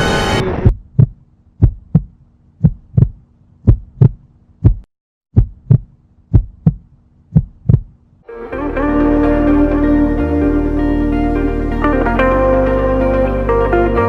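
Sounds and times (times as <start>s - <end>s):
heartbeat thumps: 0.6s - 8.0s.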